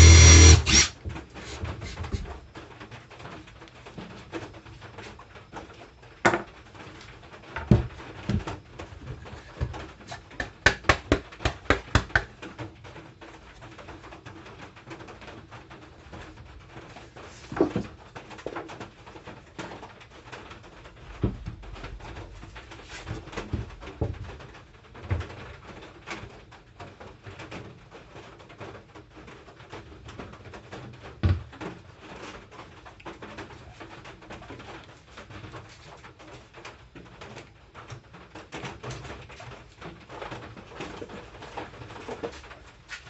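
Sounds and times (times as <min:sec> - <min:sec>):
wooden boards being handled: 0:00.0 - 0:02.5, 0:17.2 - 0:18.6
knocks of wood on wood: 0:09.6 - 0:12.5.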